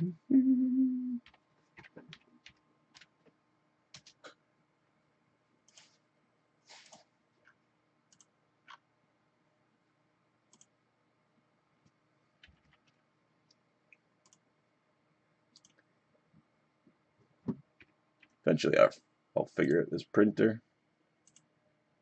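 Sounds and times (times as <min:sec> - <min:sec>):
computer mouse clicks: 0:05.7 - 0:05.9, 0:06.8 - 0:08.8, 0:10.5 - 0:10.8, 0:14.2 - 0:14.4, 0:15.5 - 0:15.9, 0:21.2 - 0:21.5.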